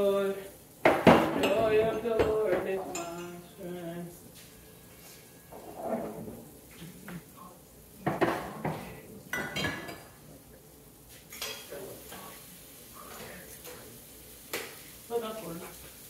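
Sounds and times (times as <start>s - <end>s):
dishes and cutlery clattering: 0.9s - 3.5s, 5.1s - 6.9s, 8.0s - 10.2s, 11.2s - 11.8s.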